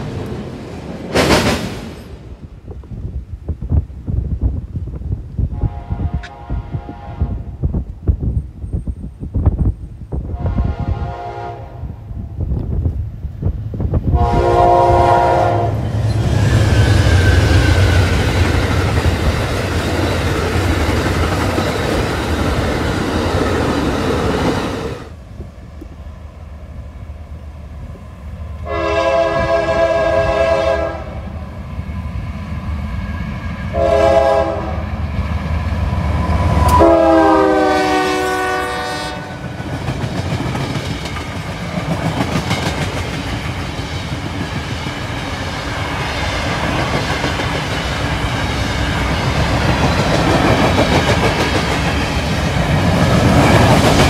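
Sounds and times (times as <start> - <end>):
passenger train passing: 0.0 - 54.0
freight locomotive horn blasts: 5.5 - 7.6, 10.3 - 12.0, 14.1 - 16.2, 28.6 - 31.3, 33.7 - 35.0, 36.6 - 39.5
locomotive horn: 5.6 - 7.6, 10.3 - 12.0, 14.2 - 15.9, 28.6 - 31.3, 33.7 - 34.9, 36.6 - 39.5
freight cars clickety-clack: 39.4 - 54.0.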